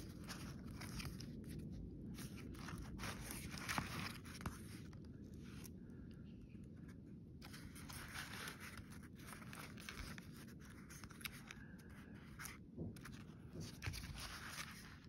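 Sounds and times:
paper pages rustling: 0:00.0 - 0:05.7, 0:06.8 - 0:15.0.

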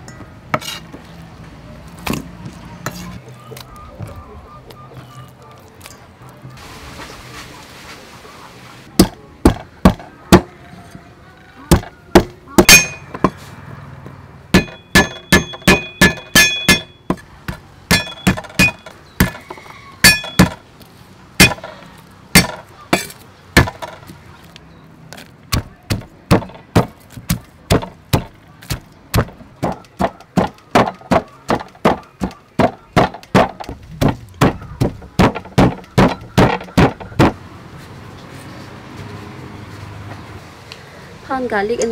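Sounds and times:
wooden pestle pounding in mortar: 0:09.0 - 0:10.5, 0:14.5 - 0:19.4, 0:20.0 - 0:20.6, 0:22.4 - 0:24.0, 0:25.5 - 0:37.4
ringing clink: 0:12.7 - 0:13.1.

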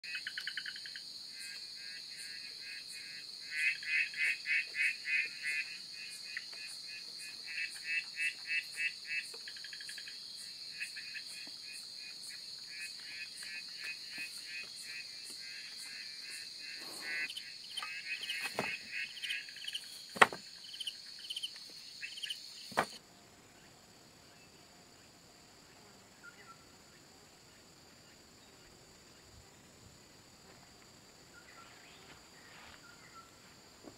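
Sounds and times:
rapid pulsed chirping calls: 0:16.9 - 0:20.0, 0:20.6 - 0:23.0.

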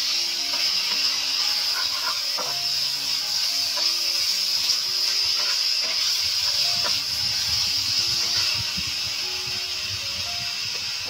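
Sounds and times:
background music with plucked notes: 0:00.0 - 0:11.0
meat sizzling in a frying pan: 0:00.0 - 0:11.0
metal spatula scraping: 0:00.5 - 0:07.2.

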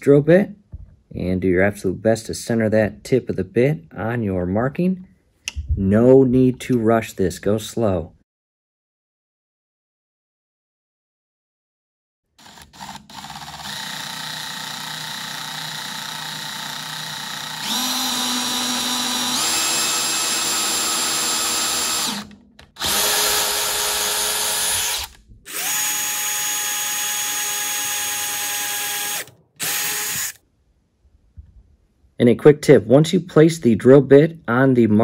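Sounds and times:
cordless drill drilling into wood: 0:12.4 - 0:30.4.

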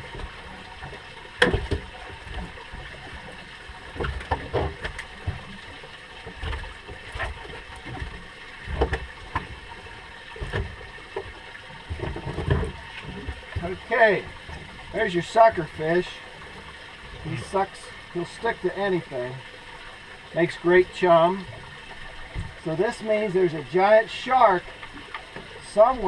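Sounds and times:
knocks and thumps on boat: 0:00.0 - 0:15.9, 0:22.3 - 0:22.7.

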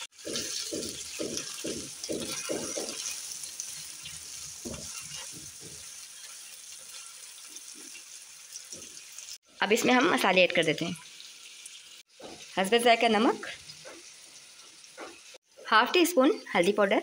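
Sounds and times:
spatula stirring in wok: 0:00.0 - 0:09.7
vegetables sizzling in oil: 0:00.0 - 0:17.0.

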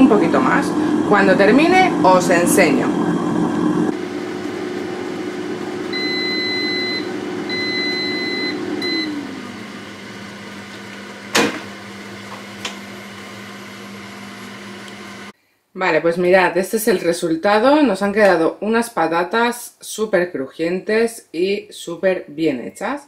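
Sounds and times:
air fryer fan running: 0:00.0 - 0:15.3
appliance beeps: 0:05.8 - 0:10.3.

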